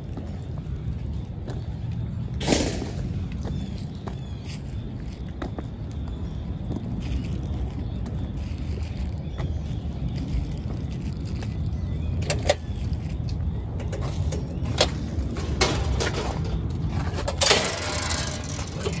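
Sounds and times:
metal gate clanking: 13.8s - 19.0s.

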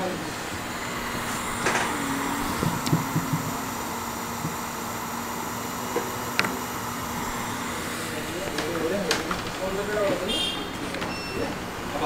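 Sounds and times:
workroom hum and hiss: 0.0s - 12.0s
low steady tone: 0.6s - 8.2s.

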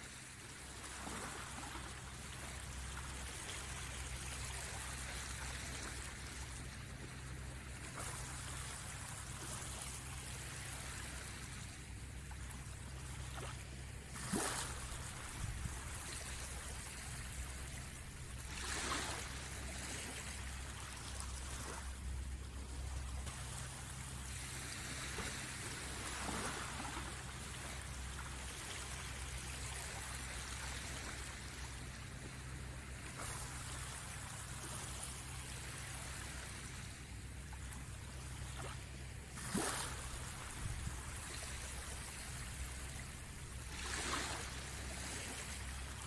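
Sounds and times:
small waves washing ashore: 0.0s - 46.0s
water splash: 14.1s - 16.5s.

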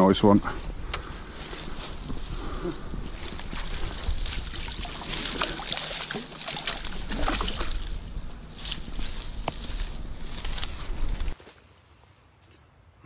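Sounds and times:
grass and leaves rustling: 0.0s - 13.0s
water sloshing and dripping: 3.0s - 9.2s.

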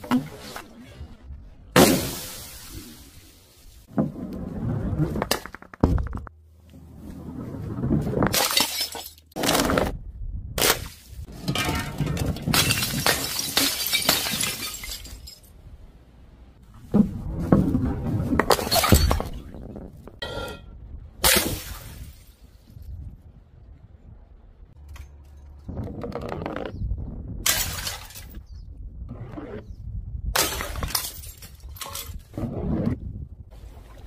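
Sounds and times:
glass jars smashing on stone: 8.3s - 9.4s, 11.4s - 15.6s, 18.5s - 19.4s, 27.5s - 28.4s, 30.4s - 32.2s.

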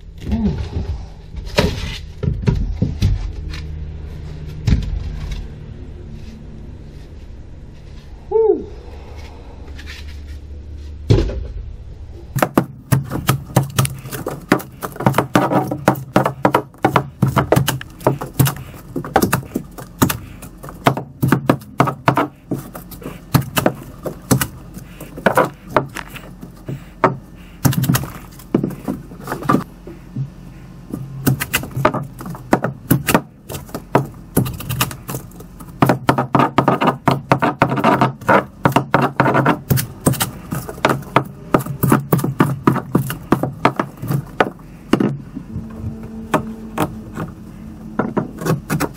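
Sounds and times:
heavy thump: 11.0s - 19.3s
debris rattling: 12.3s - 29.7s
hammer blows: 35.9s - 48.9s.

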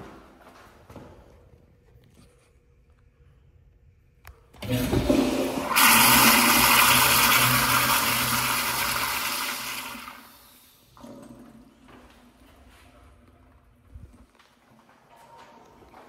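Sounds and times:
toilet tank refilling hiss: 4.6s - 11.0s
toilet flushing: 4.6s - 11.7s.

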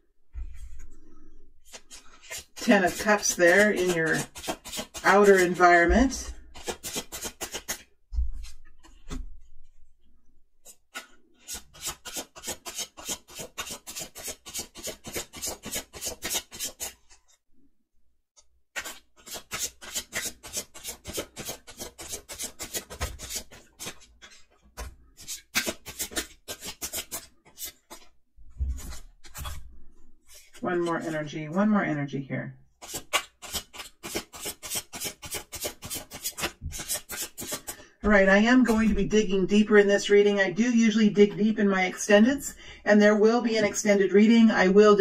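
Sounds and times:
cards being shuffled: 1.6s - 5.6s, 6.5s - 9.2s, 10.6s - 17.3s, 18.8s - 29.7s, 32.8s - 37.8s.

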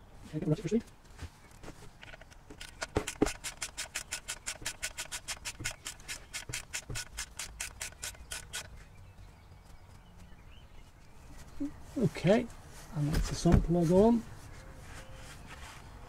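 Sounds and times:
socket ratchet clicking: 2.5s - 8.7s.

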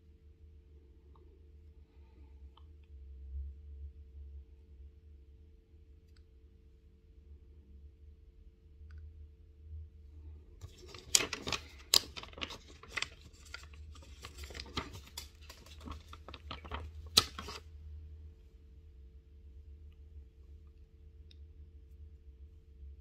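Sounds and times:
plastic sticker sheet crackling: 10.6s - 17.6s.

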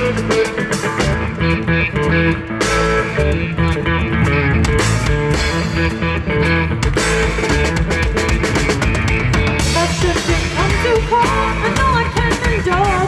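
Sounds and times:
rock band playing: 0.0s - 13.0s
woman singing: 9.7s - 13.0s.

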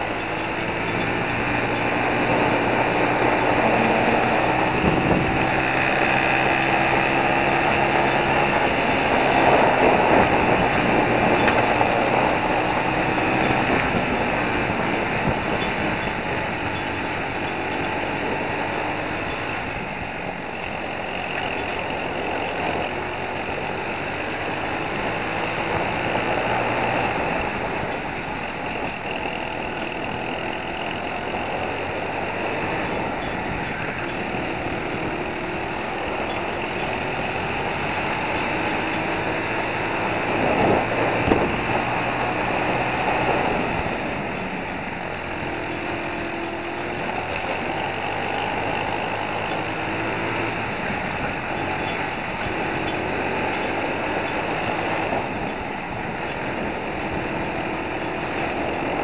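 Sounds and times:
kart engine revving: 0.0s - 59.0s
wind on microphone: 1.4s - 20.3s, 32.7s - 45.4s.

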